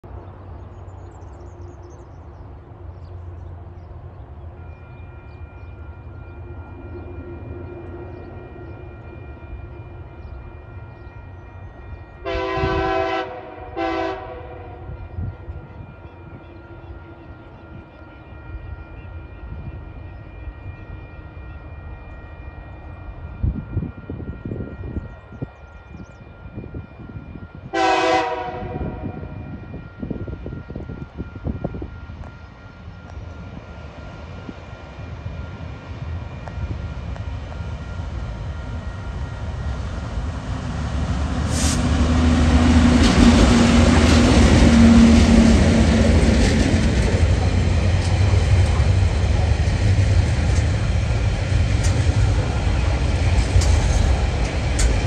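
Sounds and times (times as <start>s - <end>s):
crossing warning bell ringing: 3.2s - 55.0s
locomotive horn blasts: 12.2s - 15.0s, 27.7s - 29.5s
locomotive engine rumble: 31.2s - 55.0s.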